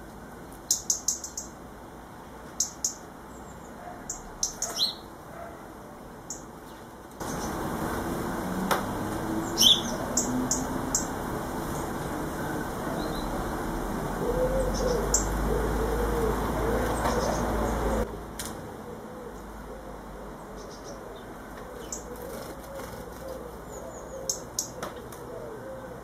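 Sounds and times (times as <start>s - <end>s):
birds flapping wings: 22.1s - 23.5s.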